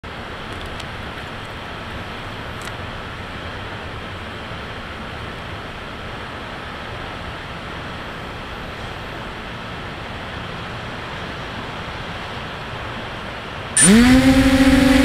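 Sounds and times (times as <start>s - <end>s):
faint high tone: 13.8s - 15.0s.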